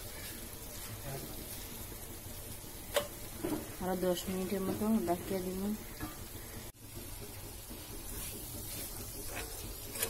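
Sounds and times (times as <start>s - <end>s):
metal spoon scraping a pan: 0.0s - 0.7s, 8.1s - 10.0s
low hiss of food cooking: 0.0s - 10.0s.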